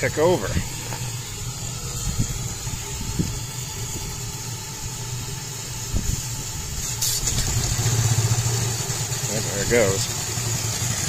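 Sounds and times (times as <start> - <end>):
steam engine turning over: 0.0 - 11.0
steam hissing: 0.0 - 11.0
short rush of steam: 6.0 - 11.0.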